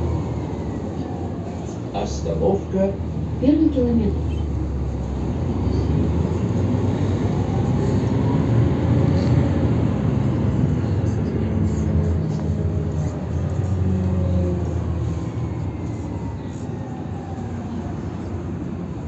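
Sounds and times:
bus diesel engine humming: 0:00.0 - 0:19.0
road noise: 0:00.0 - 0:19.0.

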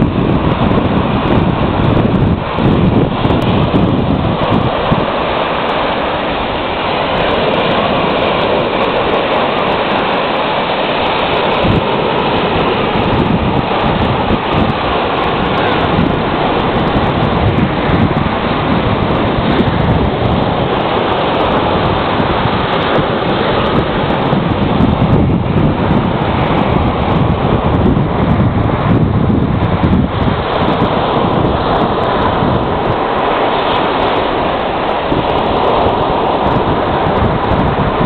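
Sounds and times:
waves washing up a beach: 0:00.0 - 0:38.0
wind buffeting microphone: 0:00.0 - 0:38.0.

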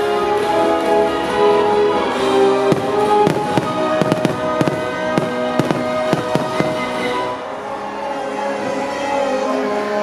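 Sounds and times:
loud music with held notes: 0:00.0 - 0:10.0
fireworks bangs: 0:02.5 - 0:07.2.

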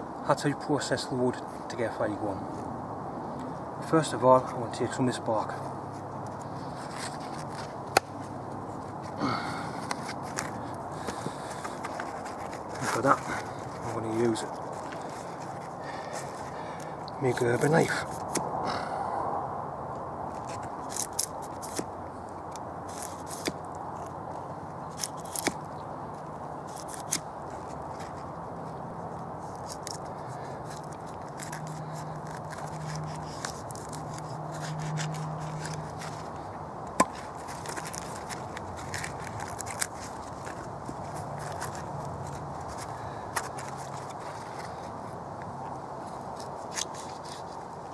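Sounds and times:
knife scraping bark off log: 0:05.9 - 0:18.6, 0:20.3 - 0:21.9, 0:22.9 - 0:25.7, 0:26.6 - 0:28.3, 0:29.3 - 0:45.0, 0:46.1 - 0:47.7.

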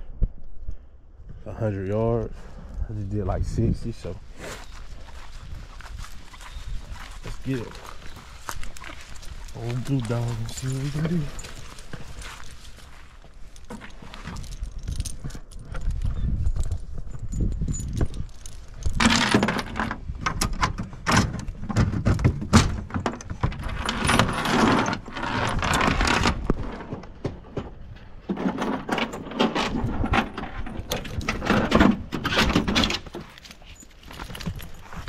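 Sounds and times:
steps on dry pine straw: 0:04.2 - 0:14.5.

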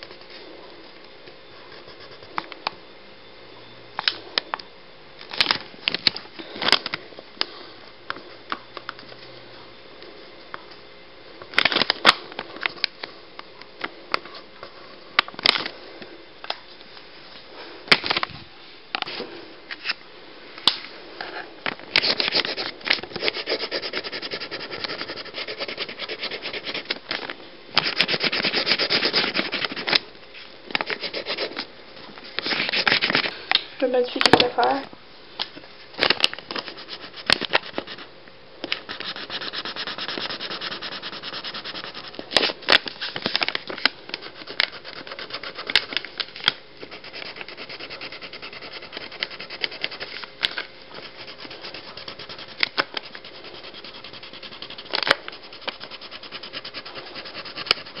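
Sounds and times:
marker scribbling rapidly: 0:23.2 - 0:26.9, 0:27.8 - 0:29.9, 0:38.8 - 0:42.2, 0:46.8 - 0:50.1, 0:51.0 - 0:58.0
marker strokes on paper: 0:38.8 - 0:42.2, 0:51.0 - 0:58.0.

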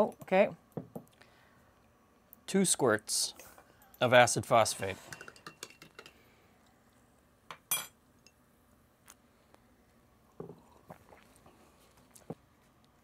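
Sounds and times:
glasses clinking: 0:05.0 - 0:06.2, 0:07.6 - 0:08.4.

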